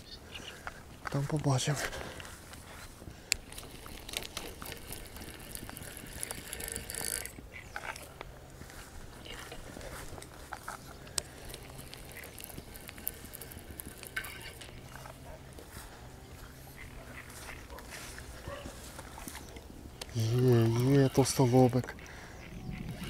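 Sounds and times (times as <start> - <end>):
fishing reel whirring and clicking: 3.3 - 15.7, 19.0 - 23.0.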